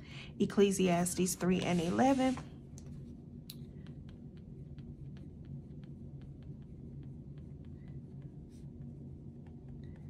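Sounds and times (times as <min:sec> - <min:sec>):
low steady hum: 0:00.0 - 0:10.0
pen scratching on paper: 0:01.2 - 0:02.4.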